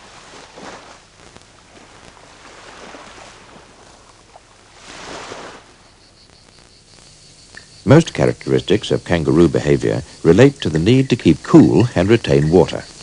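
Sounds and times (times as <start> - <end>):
surf washing on sandy beach: 0.0 - 5.8.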